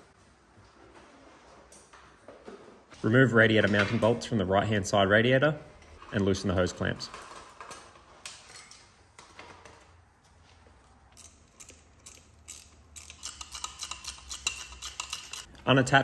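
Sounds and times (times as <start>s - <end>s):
hand tools clinking on metal: 11.2s - 15.5s.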